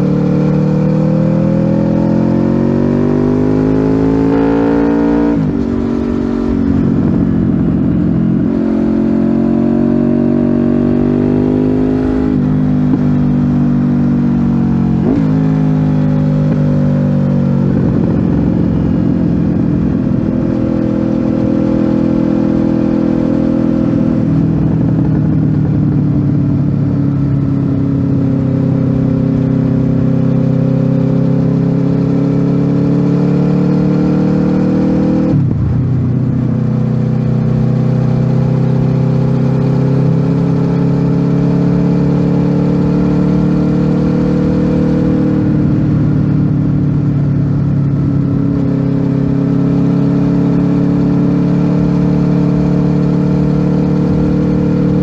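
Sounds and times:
motorcycle engine riding: 0.0s - 55.0s.

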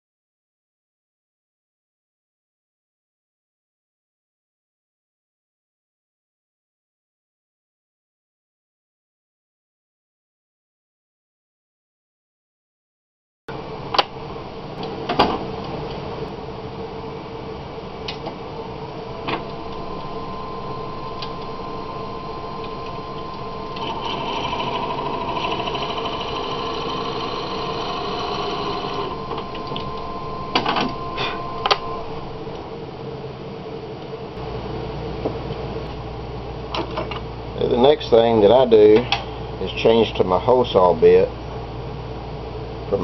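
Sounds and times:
wood lathe motor hum: 19.2s - 32.4s
drill bit rasping into wood: 23.8s - 29.1s.

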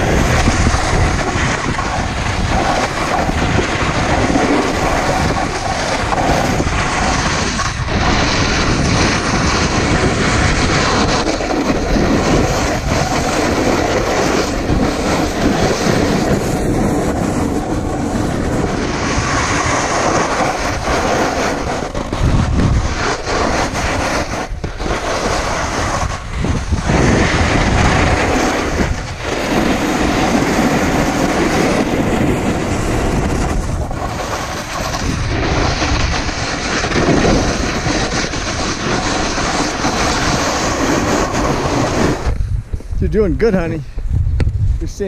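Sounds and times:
snowboard scraping over snow: 0.0s - 43.8s.

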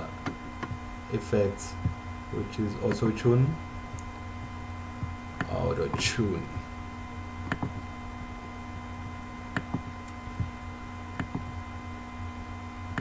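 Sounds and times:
electrical hum with tones: 0.0s - 13.0s
computer mouse clicking: 7.5s - 7.8s, 11.2s - 11.5s.

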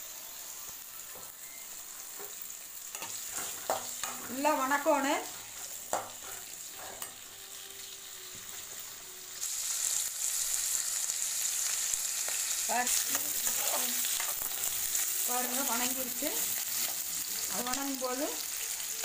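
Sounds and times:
onions sizzling in hot oil: 0.0s - 19.0s
metal spatula stirring: 2.2s - 7.3s, 12.8s - 17.1s
spatula knocking on pan: 5.9s - 6.2s.

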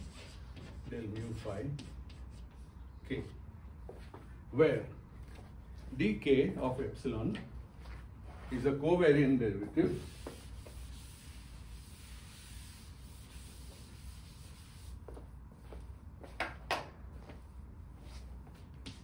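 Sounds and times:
knocks and scrapes of writing on board: 0.0s - 2.5s
room hum: 0.0s - 19.0s.

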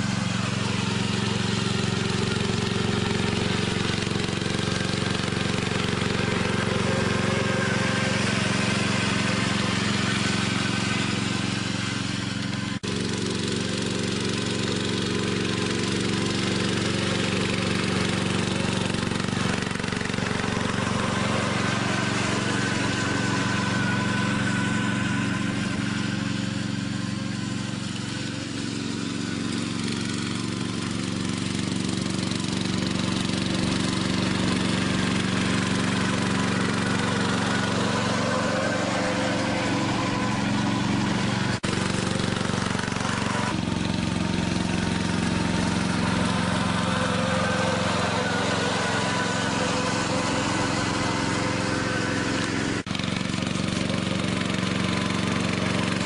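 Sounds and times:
lawn tractor engine running: 0.0s - 56.0s.

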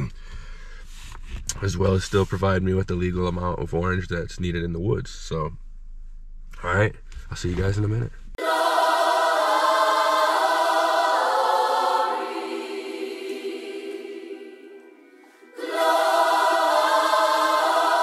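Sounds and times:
choir-like voices holding chords: 8.4s - 18.0s.

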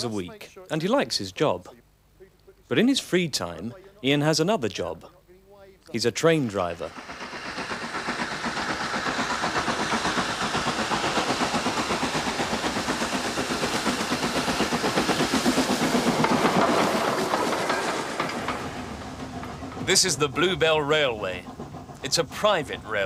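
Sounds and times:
steam locomotive chuffing: 0.0s - 1.8s, 3.0s - 23.0s
steady steam hiss: 5.6s - 23.0s.

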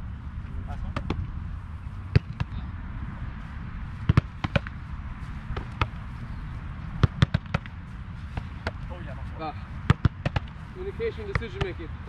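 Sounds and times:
soccer ball thuds: 0.8s - 1.3s, 2.0s - 2.6s, 3.9s - 6.2s, 6.8s - 8.9s, 9.8s - 10.6s, 11.2s - 11.9s.

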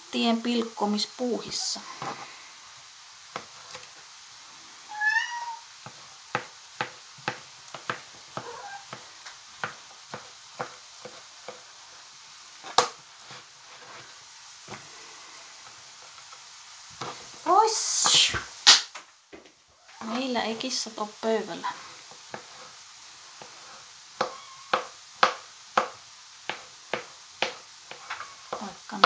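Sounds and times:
cat meowing: 4.8s - 5.7s, 8.4s - 9.0s, 24.2s - 24.9s.

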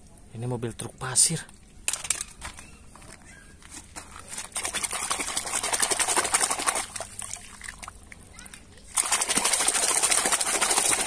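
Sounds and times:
toy splashing in bucket of water: 4.4s - 11.0s.

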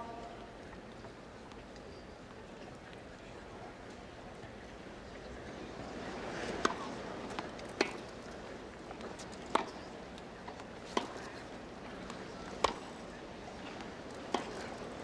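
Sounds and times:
tennis rackets striking ball: 6.6s - 8.0s, 9.5s - 9.8s, 10.9s - 11.4s, 12.0s - 12.9s, 14.2s - 15.0s.

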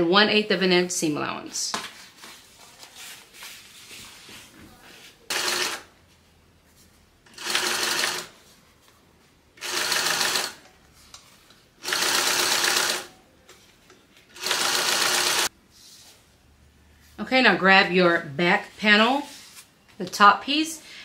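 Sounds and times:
sewing machine stitching: 5.3s - 5.9s, 7.3s - 8.3s, 9.6s - 10.6s, 11.8s - 13.1s, 14.3s - 15.5s.

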